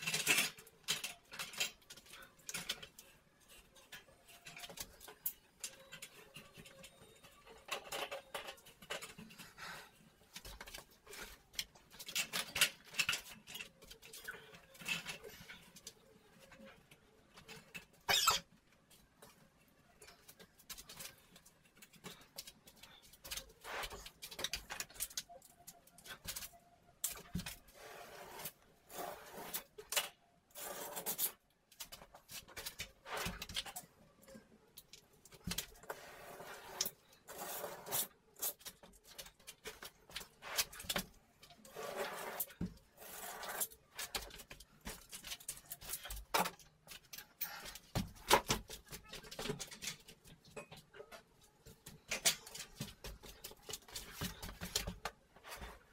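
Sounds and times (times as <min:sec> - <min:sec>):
scraping and rubbing on drywall: 0:20.1 - 0:25.1, 0:27.2 - 0:29.9, 0:30.5 - 0:33.8, 0:35.4 - 0:46.3.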